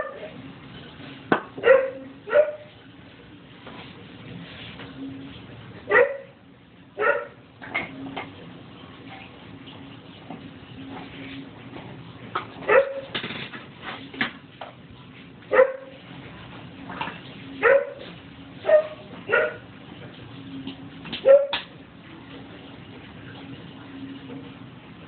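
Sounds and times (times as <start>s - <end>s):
dog yelping barks: 1.6s - 2.7s, 5.9s - 6.3s, 7.0s - 7.4s, 12.7s - 13.1s, 15.5s - 16.0s, 17.6s - 18.0s, 18.6s - 19.6s, 21.2s - 21.6s.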